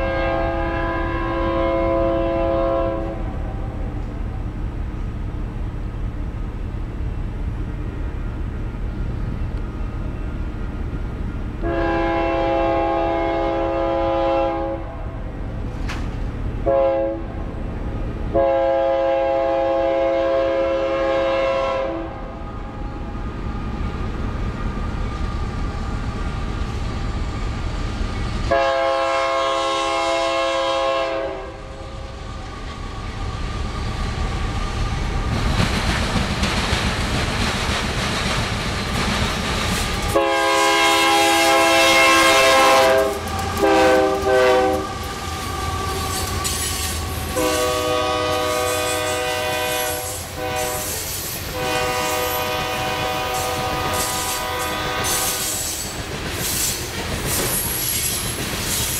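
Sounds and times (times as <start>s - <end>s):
train air horn blasts: 0.0s - 3.8s, 11.6s - 15.3s, 16.6s - 17.4s, 18.3s - 22.4s, 28.5s - 32.0s, 40.1s - 55.9s
train rumble: 0.0s - 58.9s
train wheel clatter: 15.6s - 16.5s, 32.5s - 58.9s.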